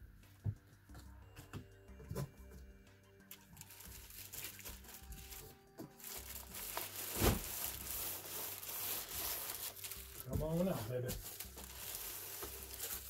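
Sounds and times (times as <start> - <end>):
plastic wrapping crinkling: 3.2 - 13.0.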